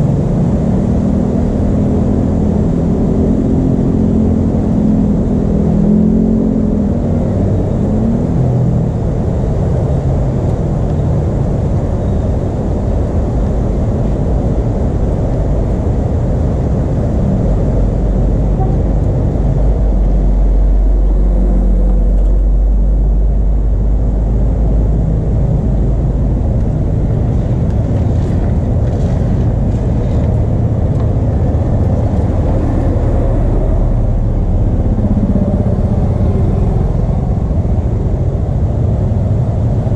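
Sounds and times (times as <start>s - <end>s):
steady low rumble: 0.0s - 39.9s
tyres on a wet road: 0.0s - 39.9s
motorcycle engines approaching: 12.2s - 39.9s.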